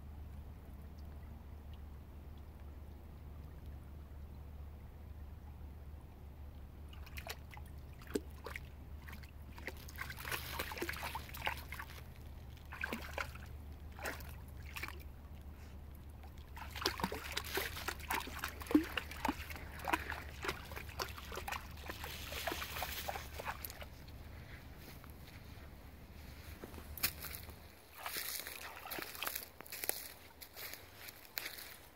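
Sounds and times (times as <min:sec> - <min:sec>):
dog splashing in water: 0:06.9 - 0:15.1, 0:16.2 - 0:24.0, 0:27.9 - 0:29.5.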